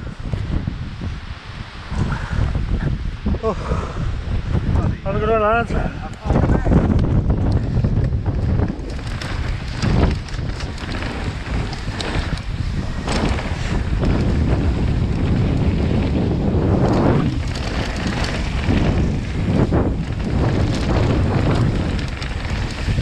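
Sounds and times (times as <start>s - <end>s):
wind buffeting microphone: 0.0s - 23.0s
bike knocking and rattling: 6.2s - 23.0s
tyres rolling over dirt and stones: 8.0s - 23.0s.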